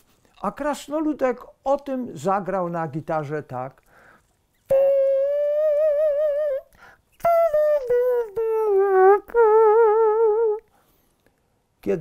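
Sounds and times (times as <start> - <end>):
small wind instrument tune: 4.7 - 10.7.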